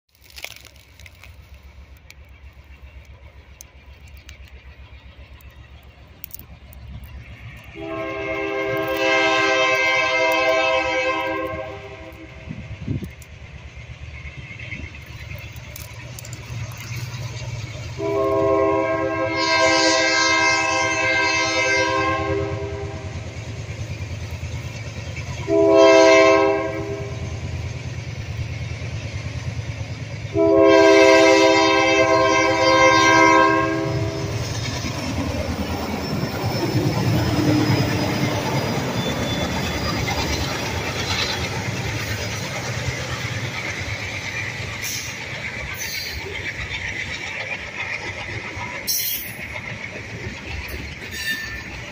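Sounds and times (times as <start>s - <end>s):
train cars rolling past: 0.1s - 51.9s
locomotive horn blasts: 7.7s - 12.4s, 17.9s - 23.3s, 25.4s - 27.3s, 30.3s - 34.4s.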